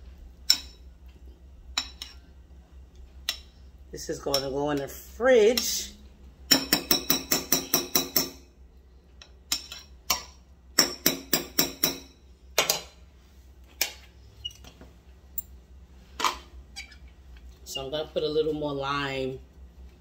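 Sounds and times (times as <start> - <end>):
metal spoon tapping glass bowl: 6.5 - 8.4, 9.5 - 12.1.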